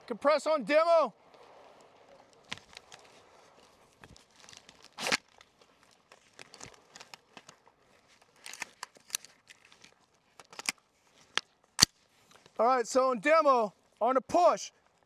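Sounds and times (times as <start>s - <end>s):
clothing and rifle rustling: 1.2s - 12.7s, 14.7s - 15.0s.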